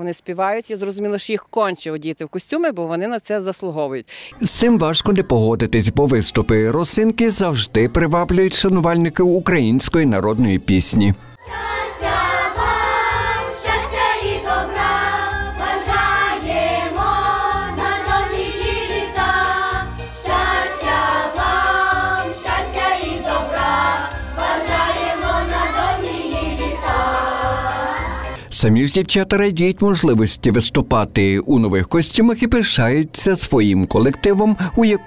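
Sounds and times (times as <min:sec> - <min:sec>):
children's choir singing: 0:11.4 - 0:28.4.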